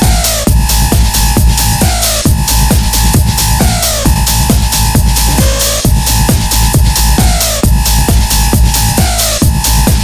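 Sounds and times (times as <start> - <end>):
four-on-the-floor kick drum: 0.0 - 10.0
hi-hats: 0.0 - 10.0
synth line gliding downward: 0.7 - 8.4.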